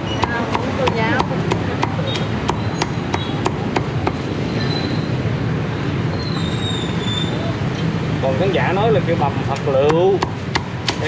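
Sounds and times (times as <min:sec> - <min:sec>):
knife chopping on wooden block: 0:09.8 - 0:11.0.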